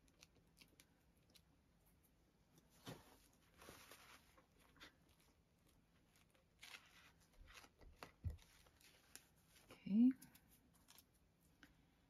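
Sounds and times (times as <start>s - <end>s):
paper and cloth rustling: 2.7s - 5.4s.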